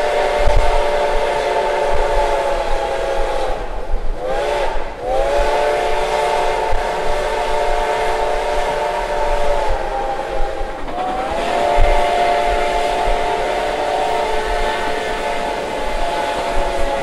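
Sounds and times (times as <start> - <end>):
steam locomotive whistle: 0.0 - 17.0
train rolling rumble: 0.0 - 17.0.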